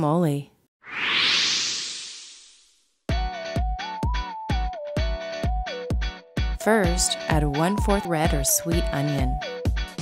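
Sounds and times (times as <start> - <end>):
whoosh sound effect: 0.8 - 2.8.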